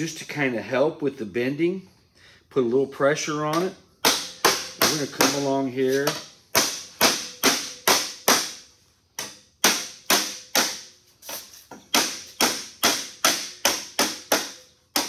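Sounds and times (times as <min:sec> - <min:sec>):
rubber mallet striking steel sheet: 0:03.5 - 0:11.0, 0:11.9 - 0:15.0.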